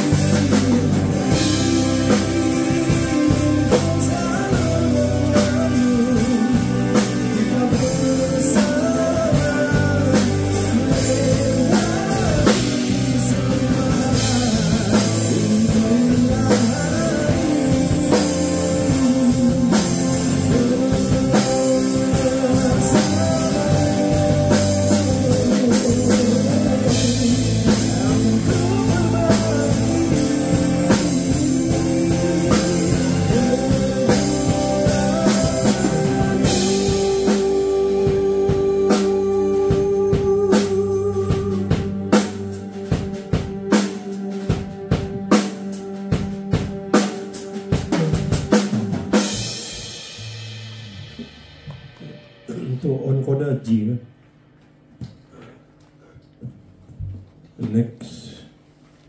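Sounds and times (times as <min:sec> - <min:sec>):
person singing: 0:00.0 - 0:46.5, 0:47.2 - 0:50.0
rock band playing: 0:00.0 - 0:53.7.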